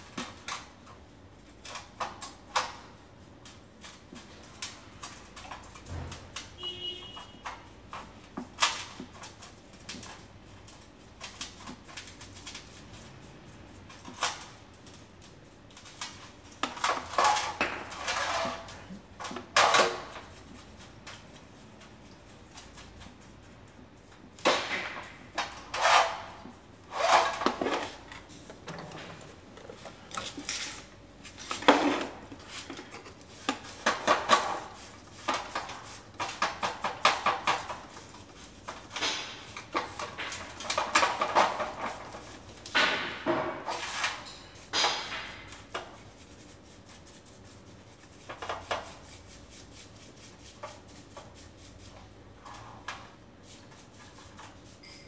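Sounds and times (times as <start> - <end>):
brushing and sloshing solvent: 25.1 - 28.3, 29.2 - 42.7, 45.4 - 54.9.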